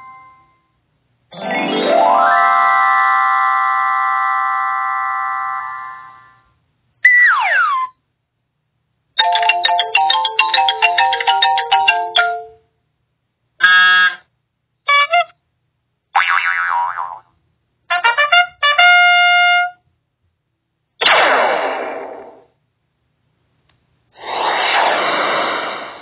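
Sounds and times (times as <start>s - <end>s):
electronic falling glide: 24.2s - 26.0s.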